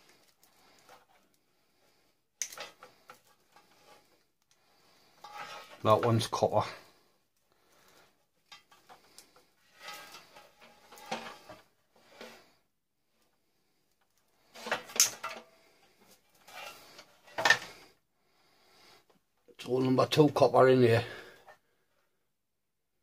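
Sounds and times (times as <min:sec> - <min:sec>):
scrap parts knocking and rattling: 0:02.4 - 0:04.2, 0:05.2 - 0:06.4, 0:08.4 - 0:12.4, 0:14.4 - 0:17.8.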